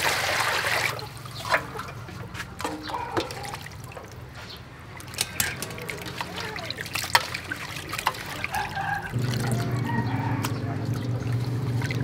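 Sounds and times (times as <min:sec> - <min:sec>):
water trickling in metal basin: 0:00.0 - 0:12.0
steel bowls clinking: 0:05.0 - 0:10.0.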